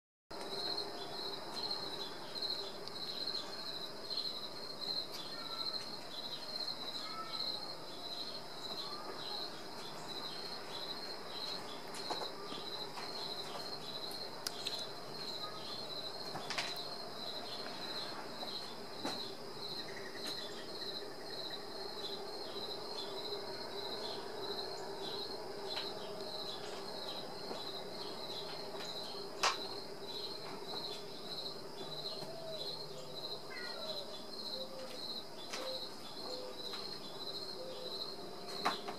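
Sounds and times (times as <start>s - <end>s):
cricket chirping: 0.4s - 38.9s.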